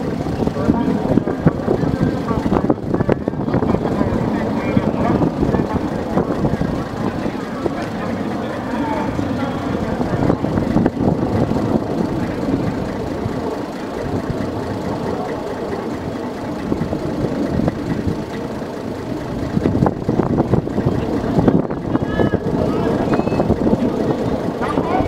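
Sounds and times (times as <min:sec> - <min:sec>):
diesel engine idling: 0:00.0 - 0:25.0.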